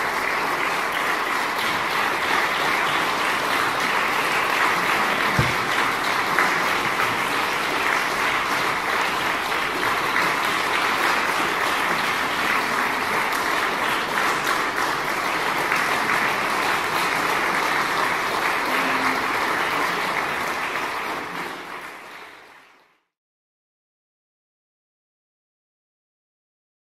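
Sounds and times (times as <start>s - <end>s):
audience applauding: 0.0s - 23.0s
low thump: 5.4s - 5.8s.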